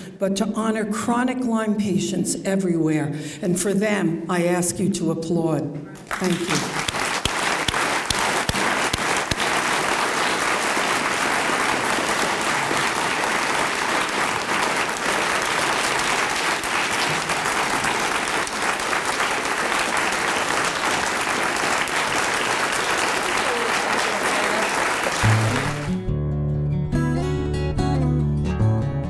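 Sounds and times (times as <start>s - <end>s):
audience applauding: 6.0s - 26.0s.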